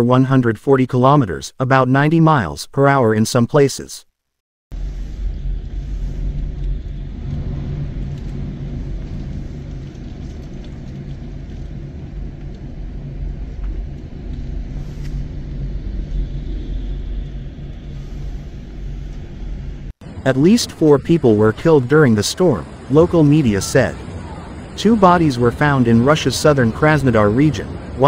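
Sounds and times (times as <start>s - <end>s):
storm wind: 4.7s - 28.0s
heavy surf breaking: 4.8s - 17.2s, 20.0s - 28.0s.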